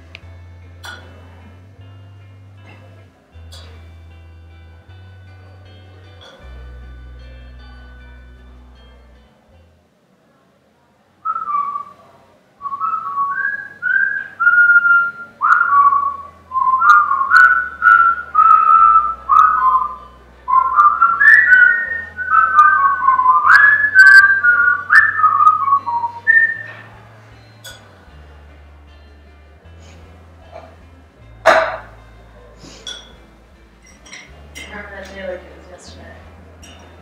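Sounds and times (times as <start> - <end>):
person whistling a tune: 11.3 - 26.8.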